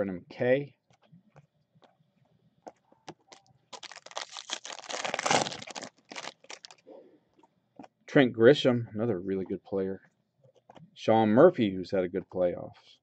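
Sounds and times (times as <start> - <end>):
plastic wrapper tearing and crinkling: 3.4 - 6.8.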